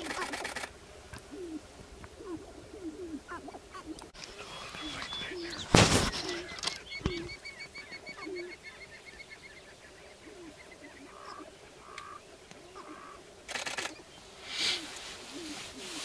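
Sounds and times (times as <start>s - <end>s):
grouse cooing calls: 0.0s - 16.0s
grouse nasal calls: 0.0s - 16.0s.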